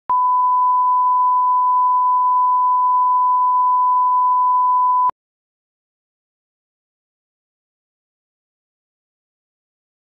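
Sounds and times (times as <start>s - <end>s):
steady sine tone: 0.1s - 5.1s.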